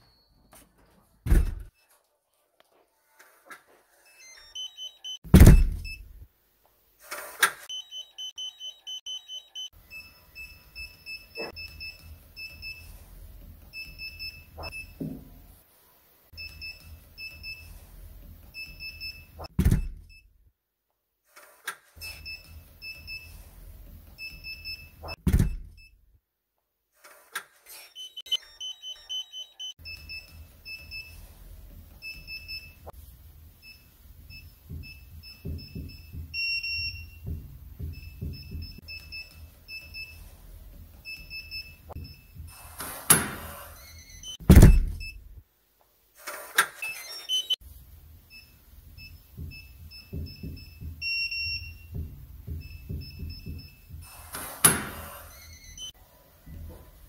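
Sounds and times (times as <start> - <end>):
bolt and door clunking shut: 1.3 - 1.7, 5.3 - 6.0, 19.5 - 20.2, 25.1 - 25.9, 44.5 - 45.3
keypad beeping: 4.1 - 5.2, 7.7 - 12.8, 27.8 - 30.8, 46.9 - 47.6
higher unlock beeps: 4.1 - 6.2, 7.7 - 10.2, 27.7 - 30.1, 46.9 - 47.6.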